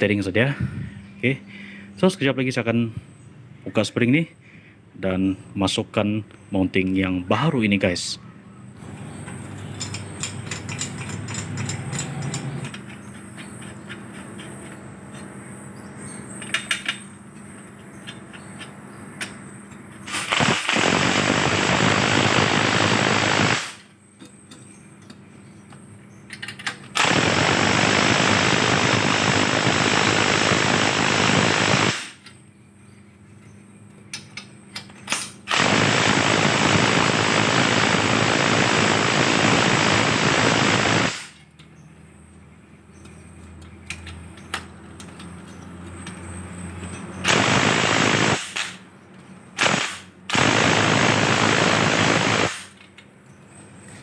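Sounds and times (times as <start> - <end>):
metal clicks and knocks: 9.6 - 15.2.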